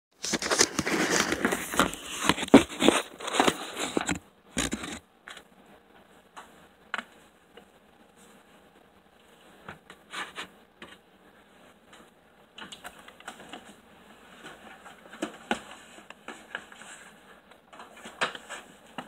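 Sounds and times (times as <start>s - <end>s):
phone rustling against clothing: 0.2s - 5.5s.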